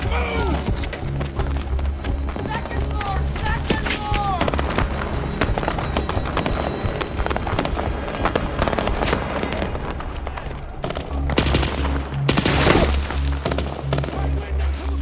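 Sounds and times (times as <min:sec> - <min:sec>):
low droning music score: 0:00.0 - 0:15.0
rifle and machine-gun fire: 0:04.4 - 0:09.7, 0:10.8 - 0:14.5.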